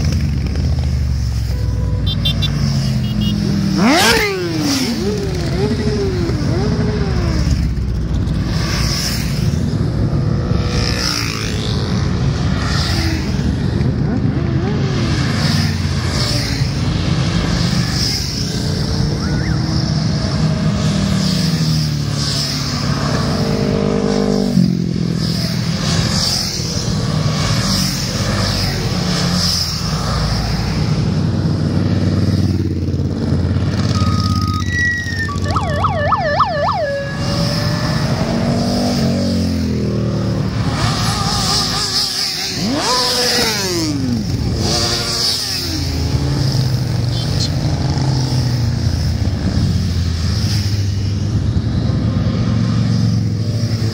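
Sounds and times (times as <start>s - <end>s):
motorcycles riding past revving: 0.0s - 53.9s
warbling siren-like tone: 33.8s - 38.6s.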